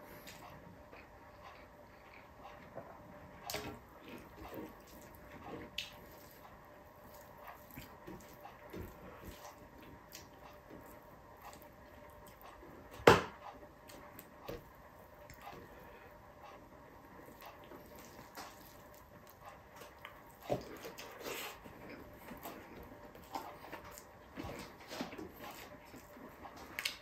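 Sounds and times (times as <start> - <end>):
chewing mouth clicks and smacks: 25.5 - 27.0.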